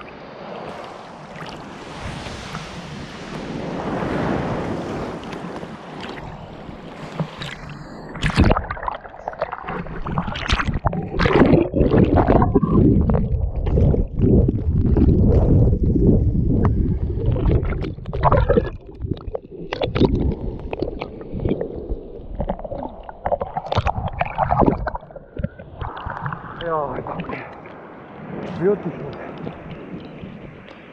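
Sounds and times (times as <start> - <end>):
sea water splashing: 0.0 - 30.9
muffled underwater gurgling: 6.1 - 27.7.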